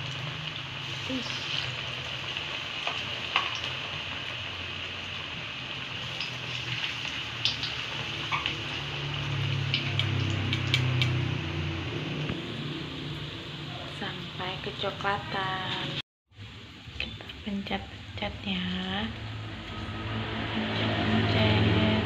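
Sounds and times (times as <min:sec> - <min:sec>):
plantain sizzling in hot oil: 0:00.0 - 0:22.0
low hum: 0:17.9 - 0:22.0.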